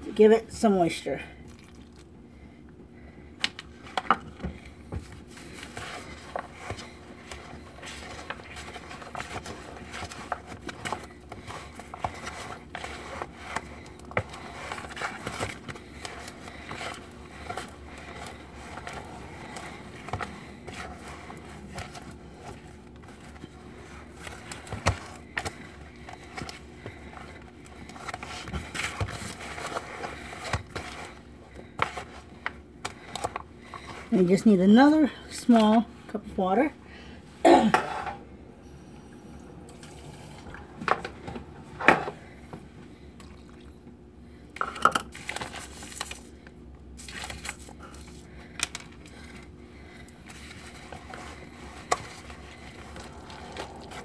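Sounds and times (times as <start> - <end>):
wooden spoon scraping plastic bowl: 5.4 - 34.6.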